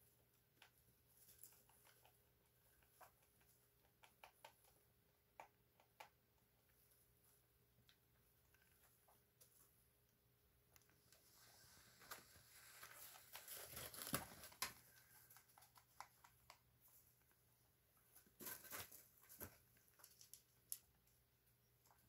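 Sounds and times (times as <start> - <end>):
rabbits rustling in bedding: 11.0 - 17.2, 18.0 - 20.5.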